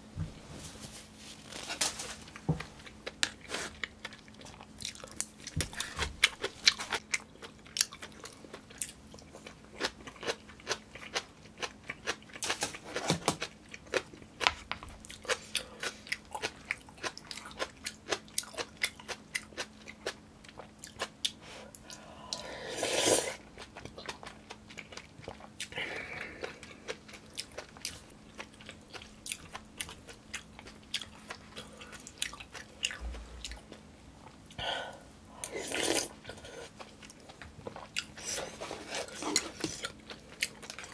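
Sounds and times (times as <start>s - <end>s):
person chewing and biting: 15.0s - 21.4s, 23.6s - 34.4s.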